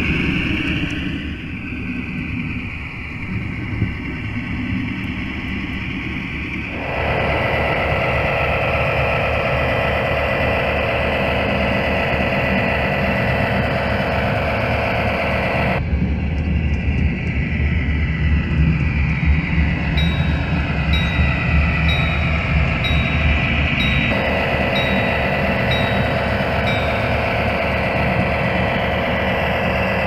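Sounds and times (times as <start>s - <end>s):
diesel locomotive engine rumble: 0.0s - 30.0s
chime-like ringing: 19.9s - 30.0s.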